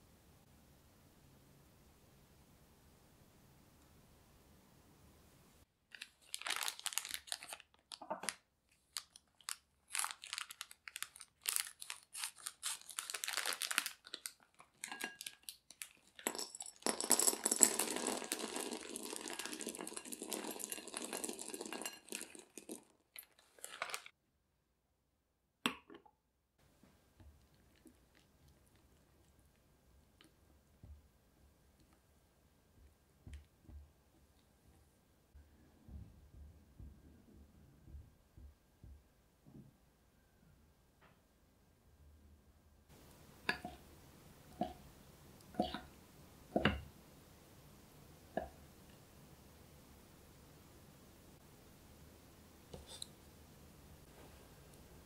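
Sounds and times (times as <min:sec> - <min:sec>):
foil-lined bag crinkling: 0:05.9 - 0:16.2, 0:22.6 - 0:24.1
chocolate pieces pouring into glass bowl: 0:09.9 - 0:24.1.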